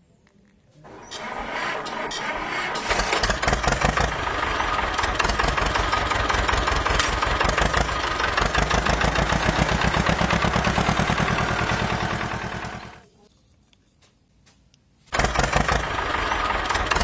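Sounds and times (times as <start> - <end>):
tractor engine chugging: 0.9 - 13.0, 15.1 - 17.0.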